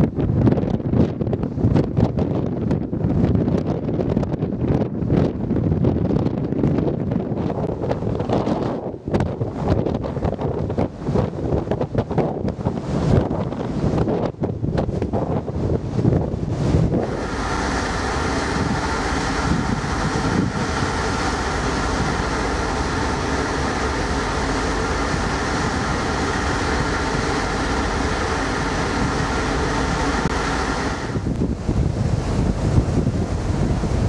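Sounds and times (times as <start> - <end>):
ferry machinery drone: 16.1 - 34.0.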